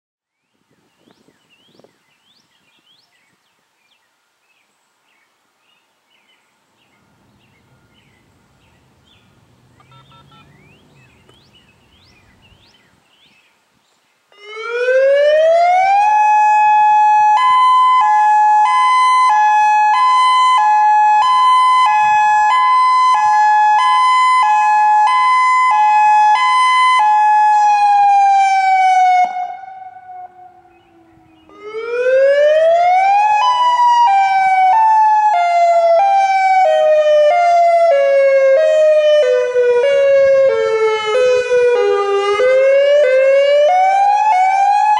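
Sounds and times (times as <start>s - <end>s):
faint bird chirps: 0.5s - 14.2s
electronic siren wailing: 14.4s - 44.9s.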